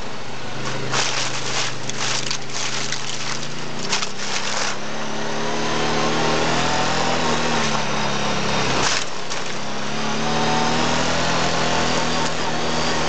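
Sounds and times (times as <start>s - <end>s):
quad engine running: 0.0s - 13.0s
gravel noise: 0.5s - 5.2s, 7.6s - 10.0s.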